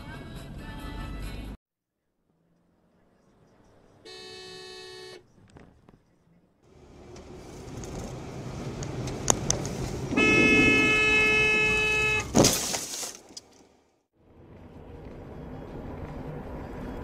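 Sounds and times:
engine and road noise: 0:00.0 - 0:01.6, 0:02.2 - 0:17.0
car horn blast: 0:04.1 - 0:05.2, 0:10.1 - 0:12.4.

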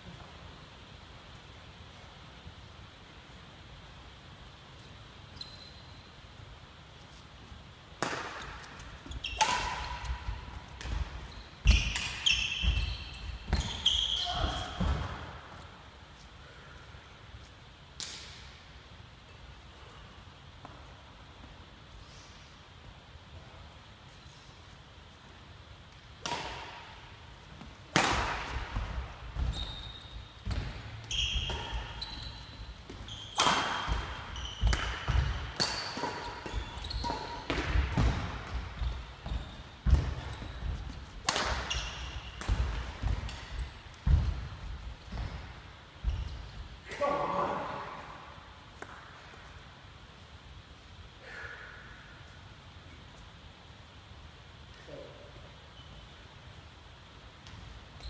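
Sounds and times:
shoes squeaking: 0:04.8 - 0:06.1, 0:08.4 - 0:15.6, 0:28.5 - 0:46.8
rackets striking shuttlecock: 0:07.9 - 0:13.8, 0:25.9 - 0:29.5, 0:32.9 - 0:38.8, 0:39.8 - 0:44.5
shoes squeaking on wooden floor: 0:29.3 - 0:38.0.

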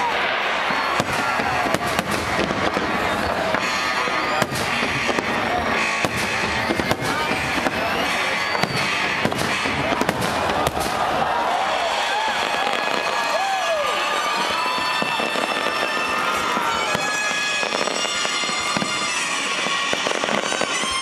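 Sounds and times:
rumble of explosions: 0:00.0 - 0:13.2
firework shells bursting: 0:00.0 - 0:13.3.

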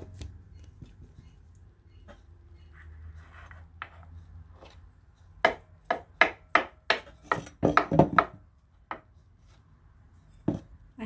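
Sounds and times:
knife chopping on wooden board: 0:05.4 - 0:09.0.

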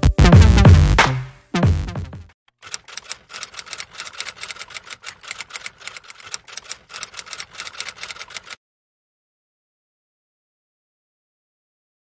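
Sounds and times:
keyboard typing clicks: 0:02.6 - 0:08.6.

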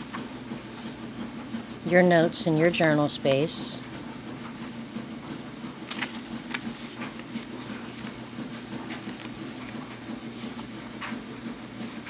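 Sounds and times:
paper pages rustling: 0:05.8 - 0:12.0.

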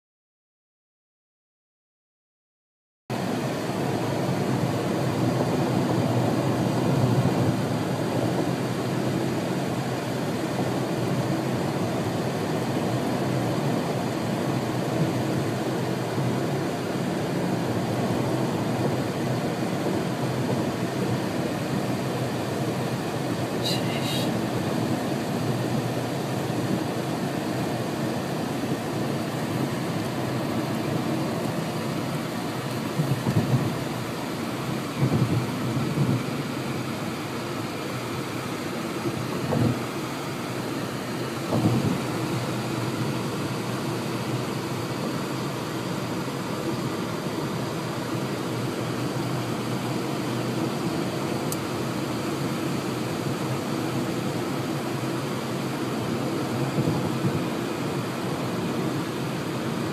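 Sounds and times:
road and engine noise inside car: 0:03.1 - 0:59.9.

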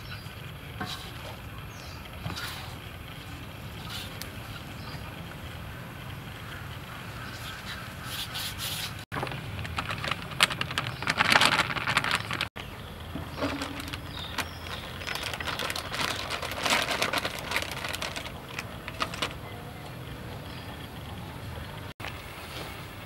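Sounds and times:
scratchy crackling: 0:08.1 - 0:12.6, 0:13.3 - 0:19.4.

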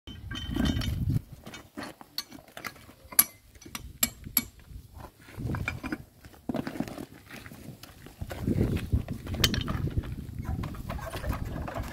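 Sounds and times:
metal parts and tools clinking: 0:00.1 - 0:04.6, 0:09.2 - 0:11.9.

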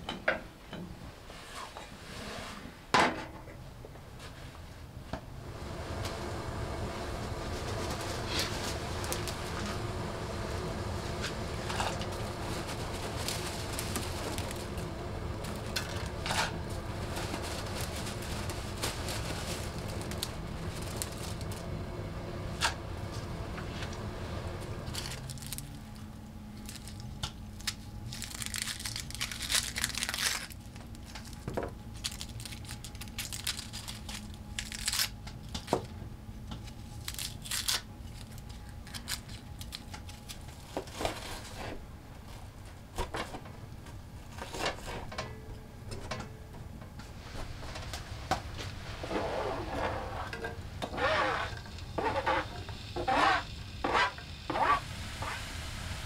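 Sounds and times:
pot of water boiling: 0:05.3 - 0:34.6, 0:47.1 - 0:56.0
onion skin crackling and tearing: 0:24.9 - 0:35.7, 0:36.6 - 0:41.4.

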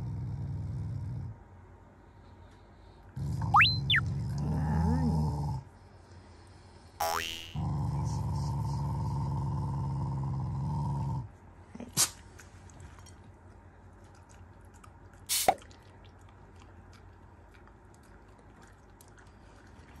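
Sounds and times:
dog growling low: 0:00.0 - 0:01.4, 0:03.2 - 0:05.7, 0:07.6 - 0:11.3.

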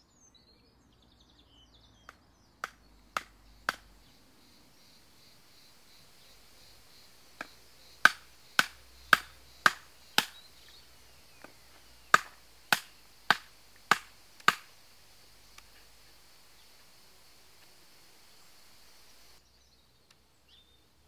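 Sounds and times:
sharp knocks: 0:02.6 - 0:03.9, 0:07.4 - 0:10.5, 0:11.4 - 0:14.7.

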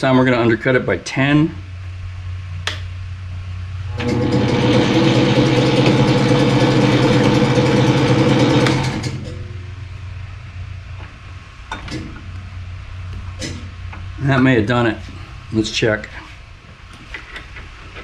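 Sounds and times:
low steady hum: 0:00.0 - 0:18.0
metal lathe running: 0:03.9 - 0:09.4.

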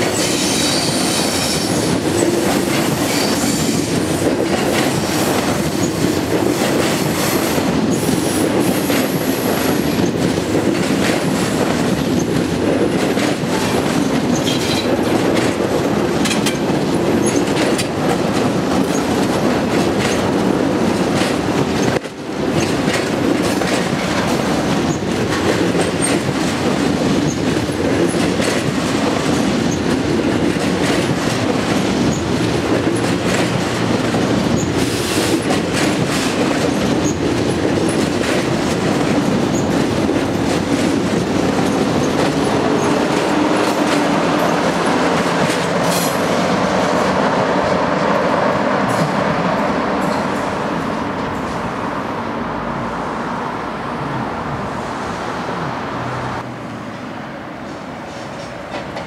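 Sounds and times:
trains rolling past: 0:00.0 - 0:59.0
wheels clicking over rail joints: 0:10.0 - 0:47.2.

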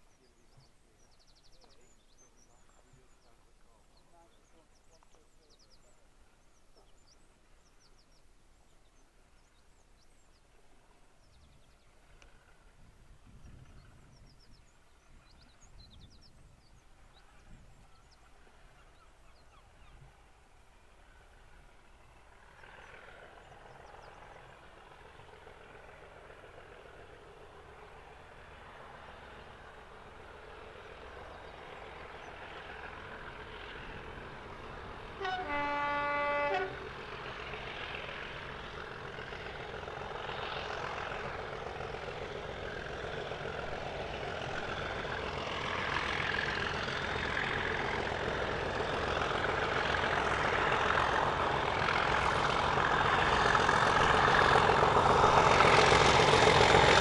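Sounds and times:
diesel locomotive engines working hard: 0:00.0 - 0:57.0
train horn blast: 0:35.0 - 0:37.0.

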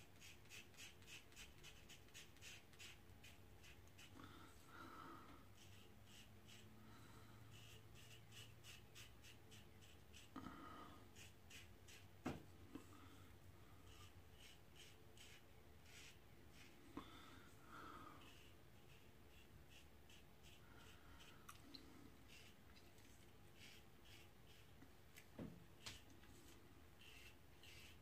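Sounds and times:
razor scraping stubble: 0:22.3 - 0:24.7, 0:25.8 - 0:28.0.

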